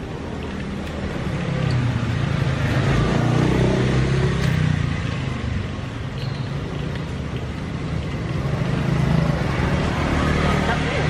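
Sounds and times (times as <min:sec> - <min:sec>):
motor vehicle passing by: 0:01.4 - 0:05.1, 0:08.0 - 0:11.0.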